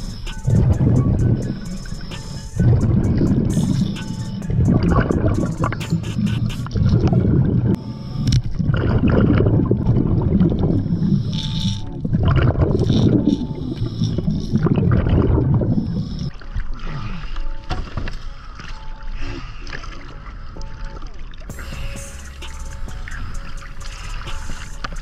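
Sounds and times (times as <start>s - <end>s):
exhaust bubbles gushing underwater: 0.0s - 16.7s
regulator hissing inhalations: 21.5s - 25.0s.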